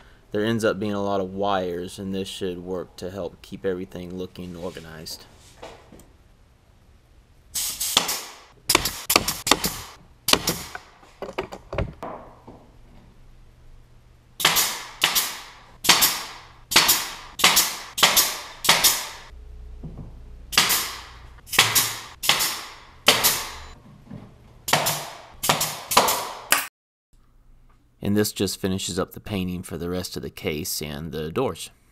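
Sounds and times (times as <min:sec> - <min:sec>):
nail gun firing: 0:07.6 - 0:10.9, 0:14.4 - 0:19.3, 0:20.5 - 0:23.6, 0:24.7 - 0:26.7.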